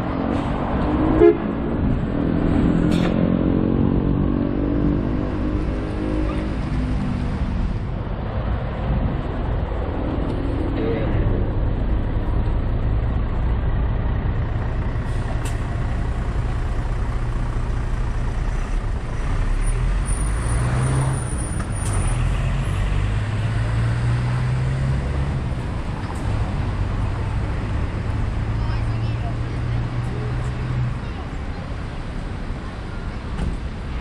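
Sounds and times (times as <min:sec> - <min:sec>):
street traffic: 0:00.0 - 0:34.0
large vehicle engine running: 0:05.0 - 0:34.0.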